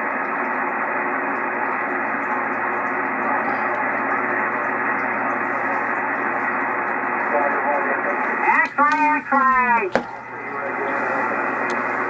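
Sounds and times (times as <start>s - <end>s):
radio static hiss: 3.0s - 12.0s.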